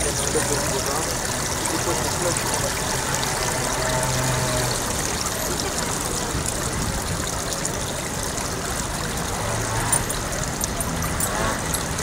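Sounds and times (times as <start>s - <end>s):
water trickling over paving: 0.0s - 12.0s.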